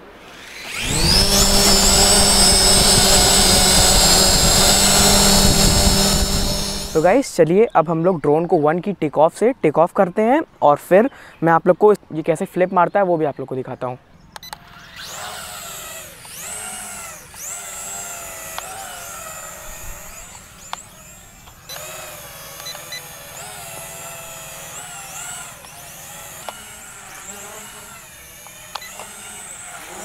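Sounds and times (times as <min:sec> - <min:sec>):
drone propellers whining: 0:00.2 - 0:07.2, 0:14.6 - 0:30.0.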